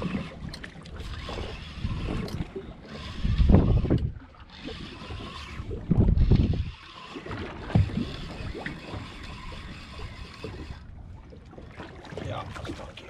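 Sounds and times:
water slapping against boat hull: 0:00.0 - 0:13.0
wind on microphone: 0:01.0 - 0:10.8.

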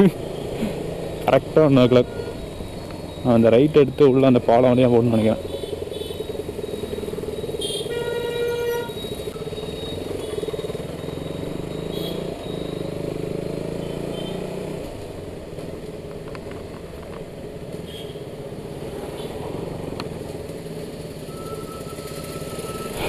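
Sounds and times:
motorcycle engine running: 0:00.0 - 0:07.9, 0:09.2 - 0:17.0
vehicle horn: 0:01.8 - 0:02.4, 0:07.6 - 0:09.0, 0:13.8 - 0:14.5, 0:17.9 - 0:18.2.

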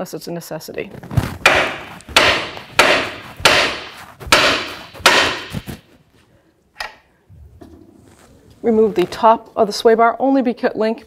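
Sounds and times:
hammer striking metal: 0:01.5 - 0:05.8.

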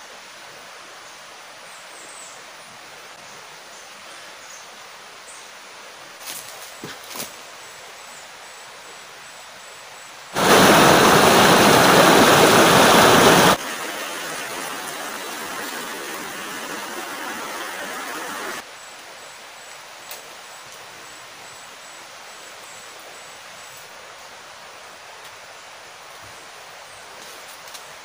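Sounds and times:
rain pouring onto leaves: 0:10.4 - 0:18.7.

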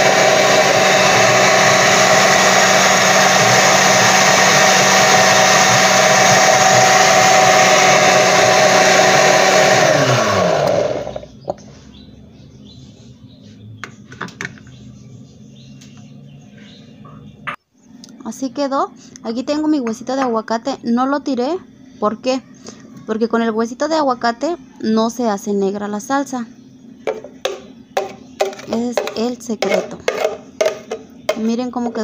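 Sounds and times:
blender motor running: 0:00.0 - 0:11.4.

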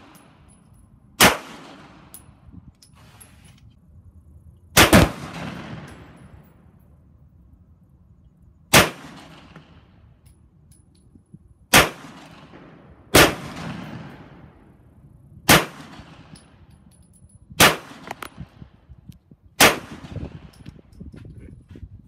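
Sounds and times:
pistol shots with echo: 0:01.2 - 0:02.1, 0:04.8 - 0:06.4, 0:08.7 - 0:09.9, 0:11.7 - 0:14.6, 0:15.5 - 0:16.5, 0:17.6 - 0:18.3, 0:19.6 - 0:20.2.

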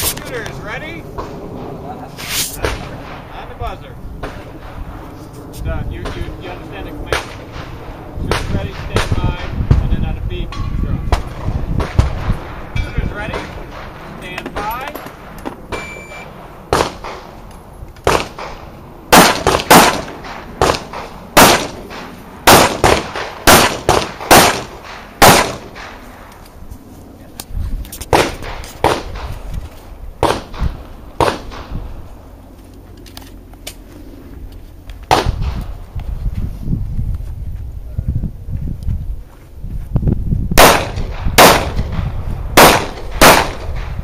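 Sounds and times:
handgun shots: 0:18.0 - 0:25.9, 0:30.2 - 0:31.6, 0:40.6 - 0:41.8, 0:42.6 - 0:43.9.

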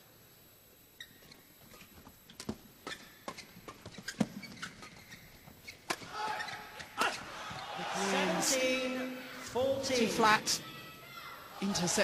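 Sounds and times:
crowd noise: 0:06.0 - 0:12.0.

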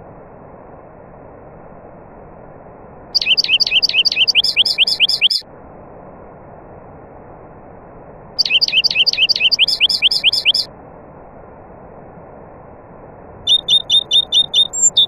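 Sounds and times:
songbird whistling song: 0:03.2 - 0:05.4, 0:08.4 - 0:10.7, 0:13.5 - 0:15.0.

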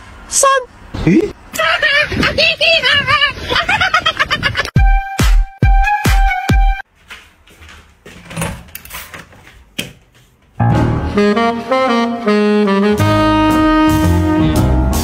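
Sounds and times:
jazzy saxophone music: 0:10.6 - 0:15.0.

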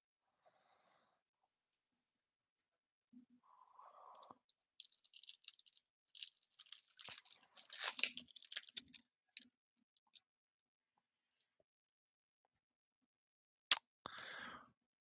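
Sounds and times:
small clicks: 0:04.2 - 0:09.5
foil wrapper crinkling: 0:04.8 - 0:09.0.

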